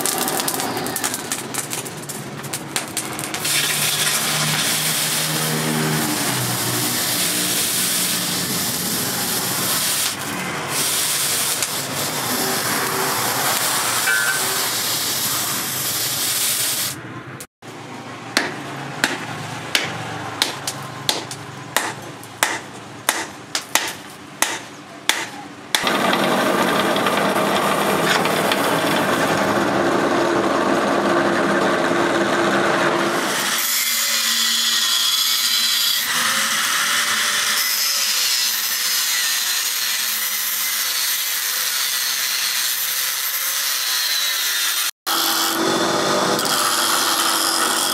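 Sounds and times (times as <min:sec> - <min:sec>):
angle grinder cutting steel: 0:02.9 - 0:17.0, 0:25.8 - 0:47.9
hot steel hissing in quench: 0:03.4 - 0:17.0
drill press boring into steel: 0:25.8 - 0:29.3.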